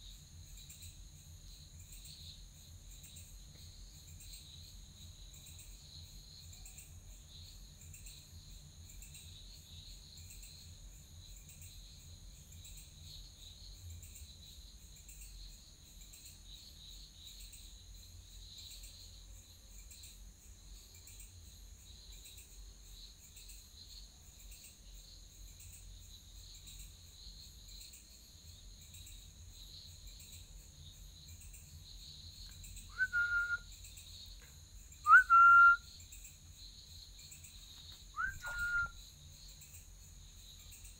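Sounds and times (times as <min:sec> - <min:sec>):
insects chirping: 0:00.0 - 0:40.9
loud high whistle: 0:32.9 - 0:33.7, 0:35.1 - 0:35.8, 0:38.2 - 0:39.0.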